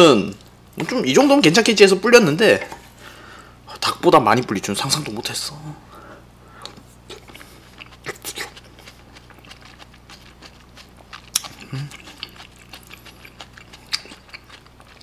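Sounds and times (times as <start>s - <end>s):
wet mouth clicks: 6.6s - 14.6s
person chewing food: 6.6s - 15.0s.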